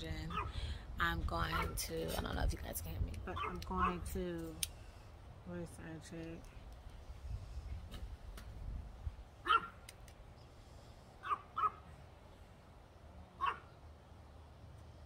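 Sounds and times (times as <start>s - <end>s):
dog barking: 0.3s - 0.5s, 3.4s - 4.0s, 9.4s - 9.8s, 11.2s - 11.8s, 13.4s - 13.7s.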